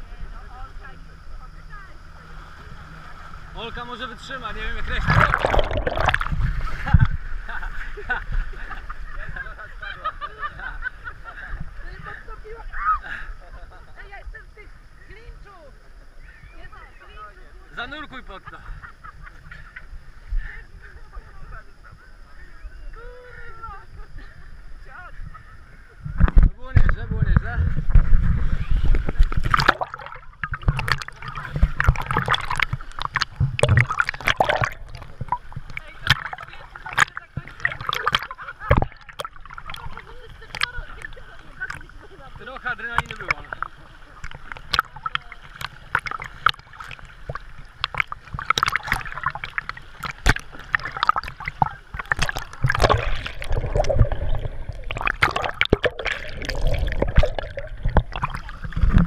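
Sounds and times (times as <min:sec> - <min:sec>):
sea water sloshing and splashing: 0:01.6 - 0:09.3, 0:26.0 - 0:59.0.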